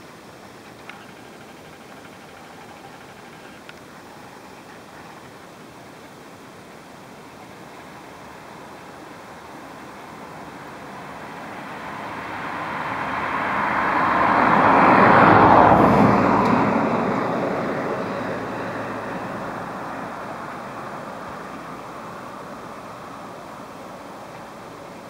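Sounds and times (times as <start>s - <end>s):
car passing by: 9.8s - 25.0s.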